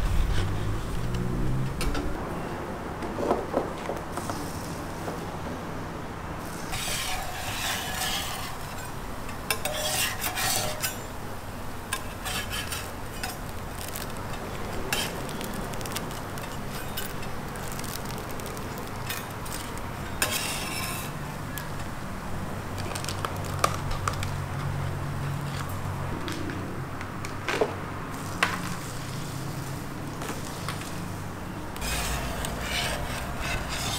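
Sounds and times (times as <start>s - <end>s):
steady low hum: 0.0s - 3.0s
metal utensils scraping griddle: 6.6s - 11.2s, 11.9s - 21.3s, 31.8s - 33.9s
light sizzling: 11.8s - 22.0s.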